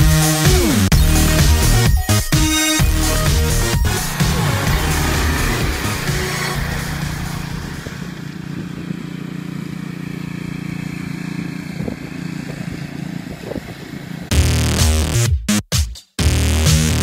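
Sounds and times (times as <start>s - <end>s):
electronic music: 0.0s - 8.4s, 14.3s - 17.0s
small engine running: 0.0s - 14.3s.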